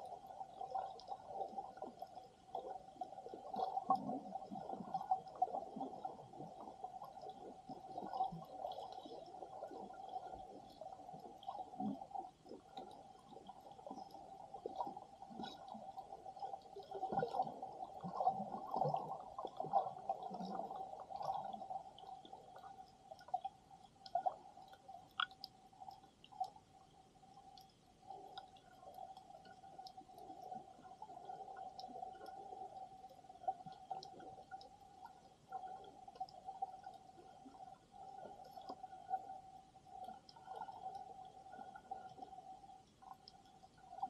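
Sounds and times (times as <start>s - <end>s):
faint clicks: 22.0s - 44.0s.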